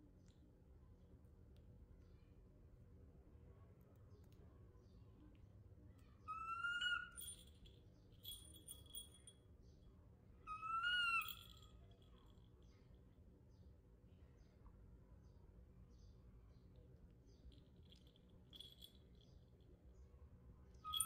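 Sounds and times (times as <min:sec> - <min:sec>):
baby monkey coo calls: 0:06.3 - 0:07.2, 0:10.5 - 0:11.5
thin bell-like ringing: 0:07.1 - 0:09.3.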